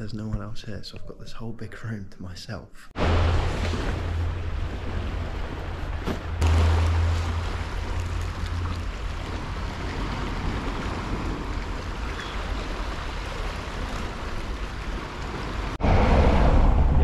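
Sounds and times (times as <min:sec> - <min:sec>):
waves washing over rocks: 0:03.0 - 0:16.8
low rumble: 0:15.6 - 0:17.0.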